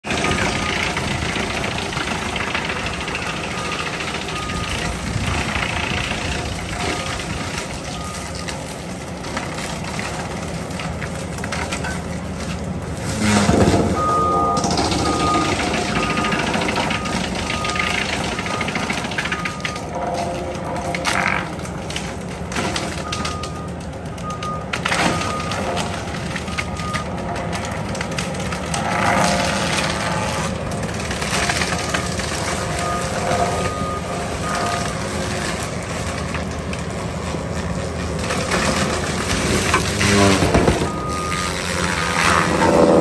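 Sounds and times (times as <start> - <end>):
track loader engine running: 0.0 - 43.0
mulcher grinding brush: 0.1 - 22.3, 25.1 - 43.0
reverse alarm beeping: 13.8 - 20.2, 32.6 - 34.9, 40.7 - 41.6.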